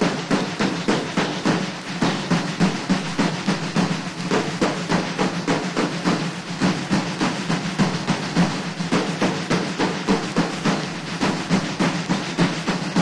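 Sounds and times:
low drum beating: 0.0s - 13.0s
snare drum marching cadence: 0.0s - 13.0s.

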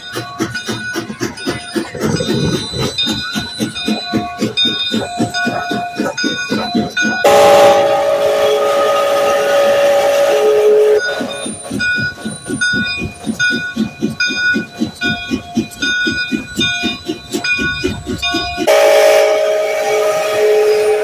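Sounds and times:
steam locomotive exhaust chuffing: 0.0s - 21.0s
steam whistle chord: 7.2s - 11.1s, 18.7s - 21.0s.

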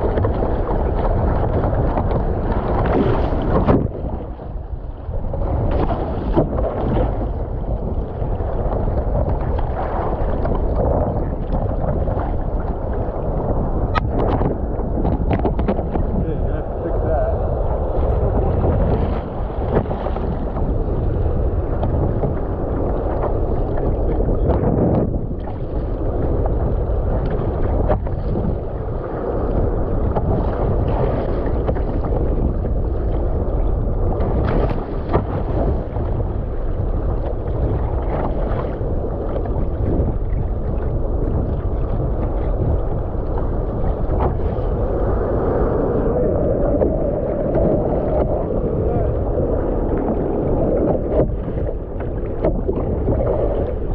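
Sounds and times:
paddle splashes: 0.0s - 53.9s
water rushing along a hull: 0.0s - 53.9s.

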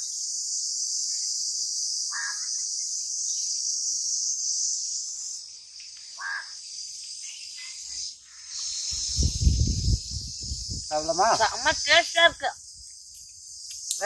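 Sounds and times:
faint chirps: 0.0s - 14.0s
insects buzzing chorus: 0.0s - 14.0s.

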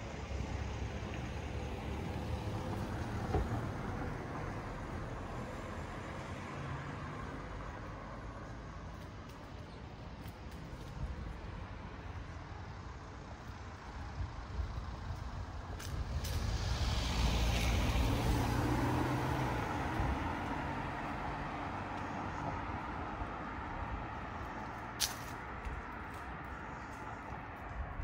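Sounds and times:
heavy vehicle engine passing: 16.0s - 23.7s.

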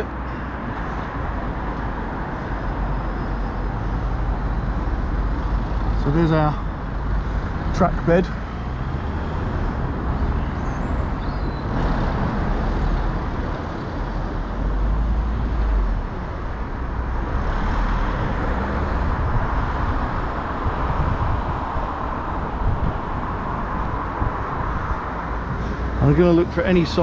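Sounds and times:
traffic passing: 0.0s - 27.0s.

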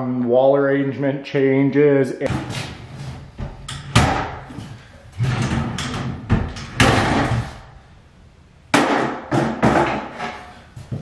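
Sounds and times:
wooden drawer knocking and clattering: 9.3s - 10.2s.

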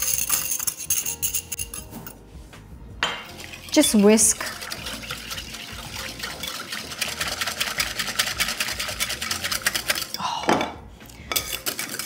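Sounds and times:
wire whisk clattering in a bowl: 0.0s - 2.1s, 3.7s - 10.2s, 11.3s - 12.0s.

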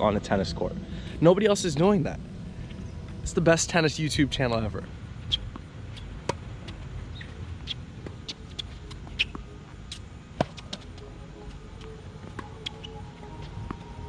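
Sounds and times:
racket hitting tennis ball: 5.3s - 6.4s, 7.2s - 10.8s
tennis ball bouncing: 5.3s - 14.0s.

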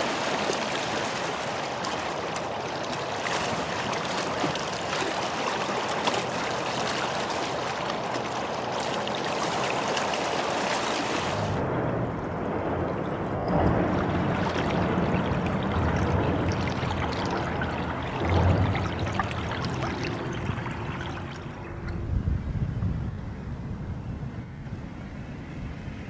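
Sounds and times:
river water flowing: 0.0s - 11.6s, 13.5s - 22.0s.

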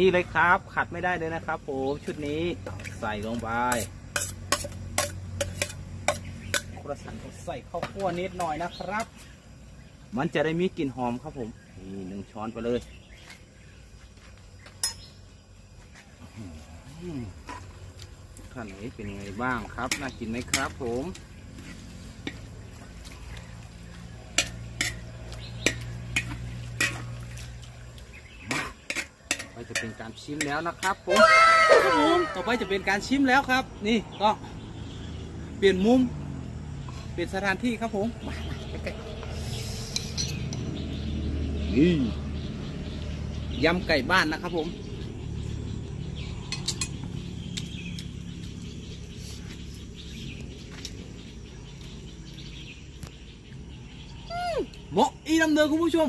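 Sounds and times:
faint bird chirps: 22.3s - 56.0s.

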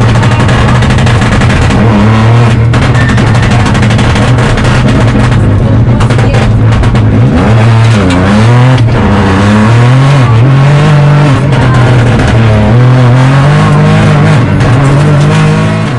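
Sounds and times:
car engine revving inside cabin: 0.0s - 15.9s.

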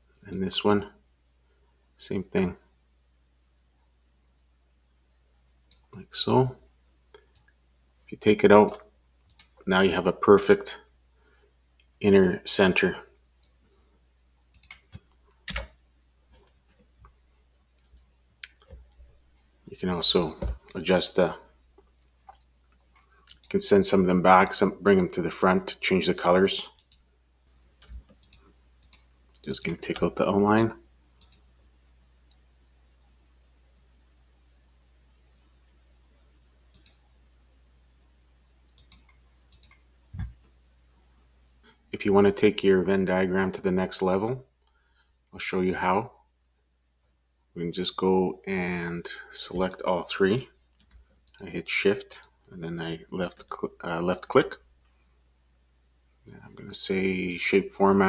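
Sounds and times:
low steady hum: 0.0s - 58.0s
faint computer clicks: 27.8s - 30.1s, 31.2s - 31.5s, 36.7s - 37.1s, 38.7s - 40.5s.

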